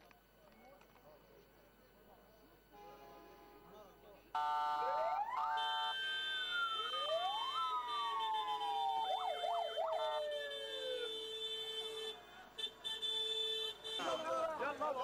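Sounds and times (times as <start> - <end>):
ambulance sirens wailing: 4.3 - 15.0
siren yelp: 4.4 - 12.2.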